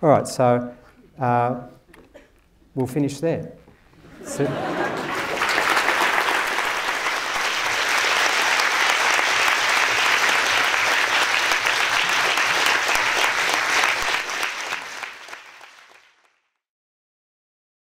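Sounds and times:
audience applauding: 0:04.3 - 0:16.5.

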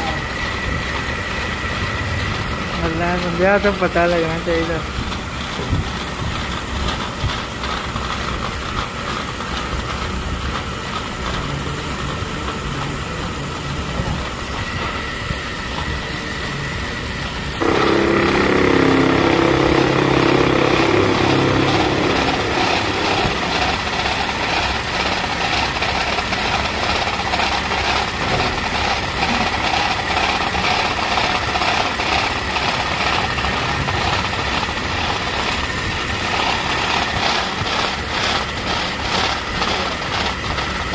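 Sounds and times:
metal lathe running: 0:00.0 - 0:40.9.

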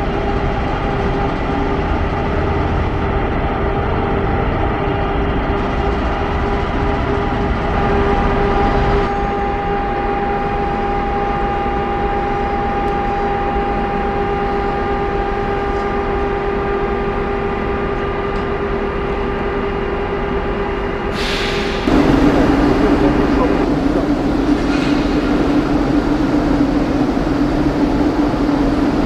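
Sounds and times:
locomotive low rumble: 0:00.0 - 0:29.0
high-pitched hum: 0:21.9 - 0:29.0.

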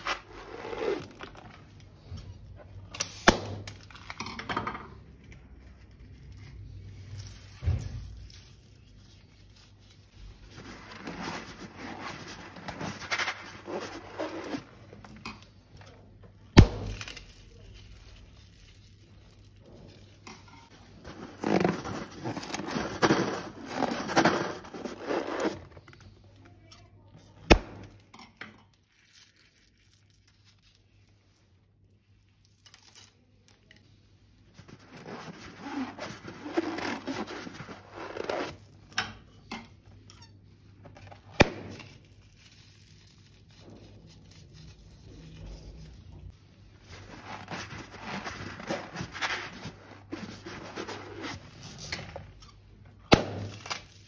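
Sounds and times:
hands rustling balloons and slime: 0:00.0 - 0:02.2, 0:05.6 - 0:15.7, 0:16.4 - 0:26.3, 0:34.4 - 0:38.8, 0:41.1 - 0:52.3.

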